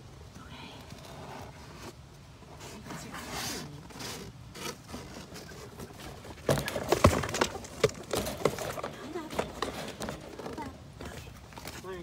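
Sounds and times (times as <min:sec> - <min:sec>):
chickens rustling and scraping: 0:01.2 - 0:12.0
sharp knocks and clatters: 0:06.3 - 0:11.7.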